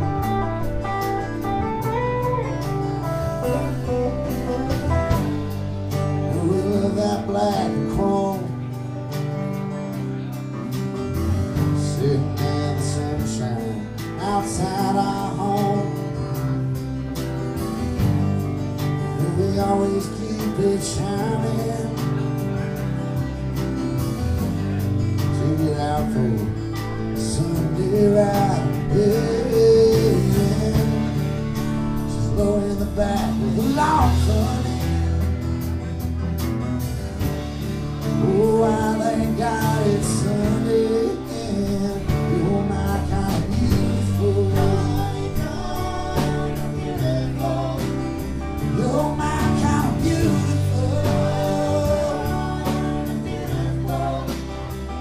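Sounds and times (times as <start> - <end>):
person singing: 0.0 - 8.9, 24.8 - 35.9, 38.0 - 55.0
live band playing: 0.0 - 55.0.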